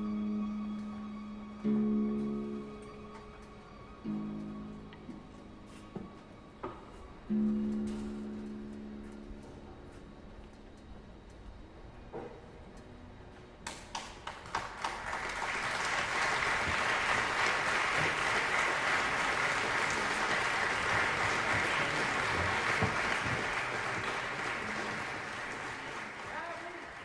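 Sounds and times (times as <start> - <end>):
audience applauding: 13.7 - 27.0.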